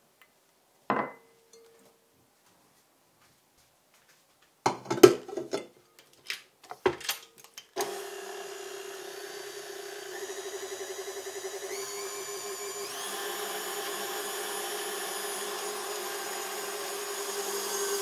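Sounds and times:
glass bowl clinking: 0.9s - 1.9s
stand mixer motor running: 7.8s - 18.0s.

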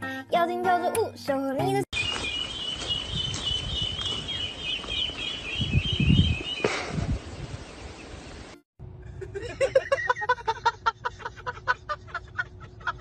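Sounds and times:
person laughing in bursts: 6.6s - 7.2s, 9.0s - 13.0s.

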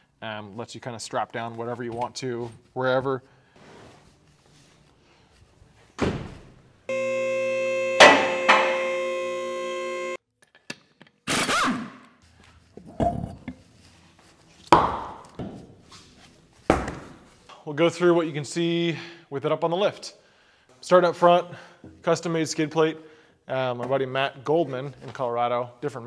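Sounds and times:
lift clunk: 8.0s - 9.0s.

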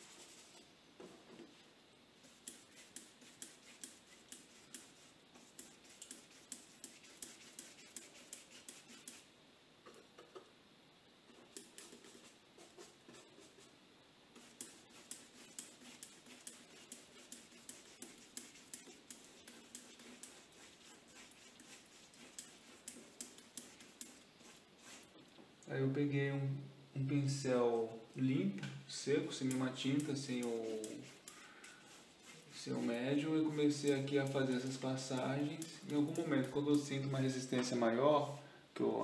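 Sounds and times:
paintbrush scratching on paper: 0.0s - 0.7s, 2.2s - 9.3s, 11.3s - 13.7s, 14.4s - 25.1s, 29.0s - 37.8s.

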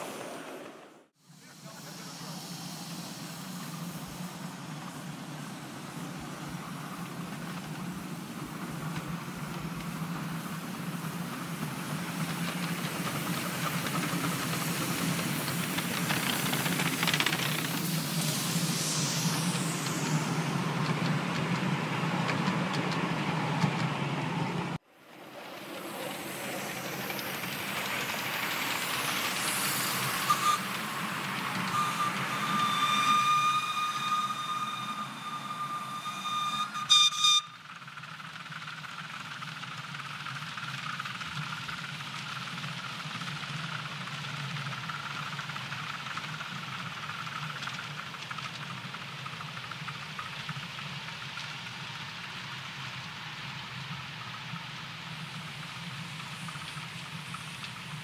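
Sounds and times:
miniature train running on track: 0.0s - 58.0s
steam hiss: 0.0s - 58.0s
steam whistle blast: 28.7s - 37.8s.

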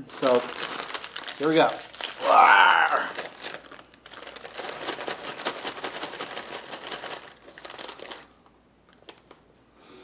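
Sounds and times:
chip bag crinkling and rustling: 0.1s - 8.4s
bag tearing open with falling pitch: 0.5s - 3.6s.

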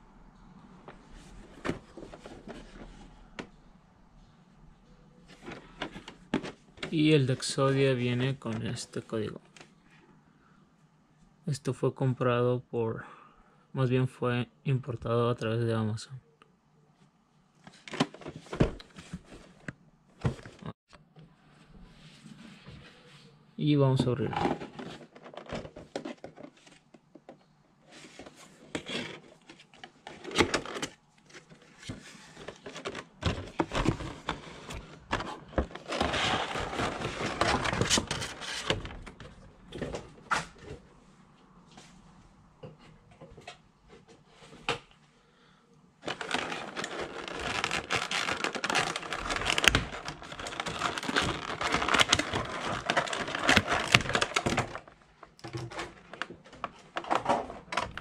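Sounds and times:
plastic packaging crinkling: 29.7s - 38.8s, 46.0s - 57.2s.

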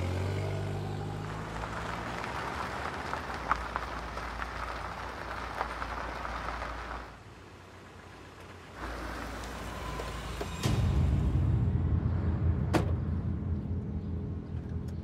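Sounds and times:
tyres crunching on gritty road: 0.0s - 10.8s
low engine rumble: 0.0s - 15.0s.

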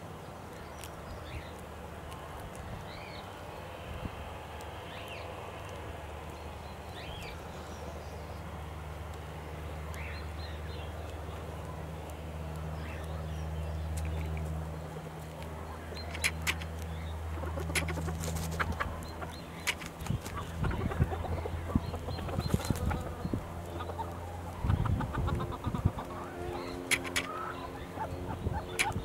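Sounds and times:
crackly low rustling: 0.0s - 29.0s
chickens clucking: 14.0s - 29.0s.

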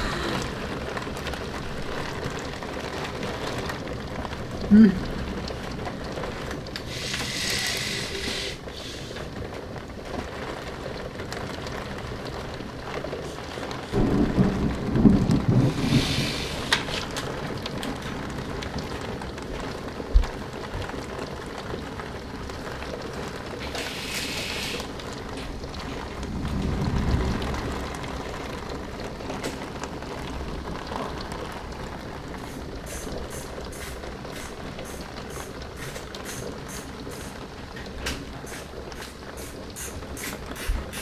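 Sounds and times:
low thunder rumble: 0.0s - 6.7s, 13.7s - 21.1s, 24.9s - 33.3s
heavy rain pouring: 0.0s - 41.0s.

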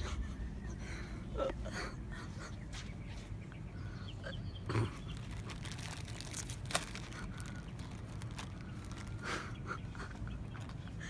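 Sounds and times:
steady low rumble: 0.0s - 11.0s
plastic chip bag crinkling: 4.8s - 10.8s.

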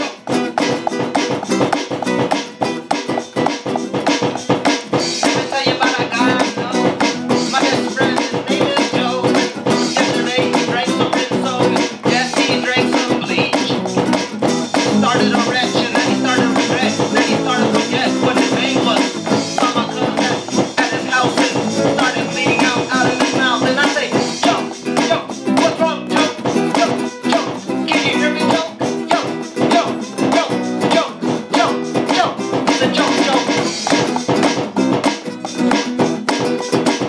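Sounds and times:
live band with amplified guitar: 0.0s - 37.0s
man vocalizing into microphone: 5.2s - 14.0s, 14.8s - 33.8s.

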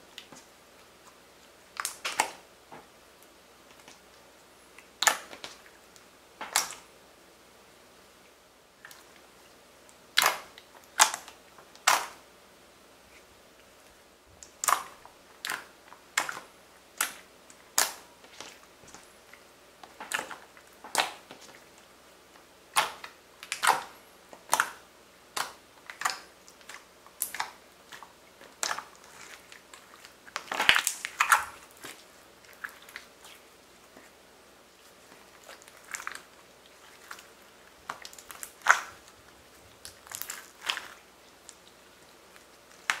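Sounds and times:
slime clicking and popping: 10.2s - 12.2s, 19.8s - 21.4s, 22.7s - 23.9s, 30.3s - 31.9s, 37.8s - 39.1s, 39.8s - 41.6s.

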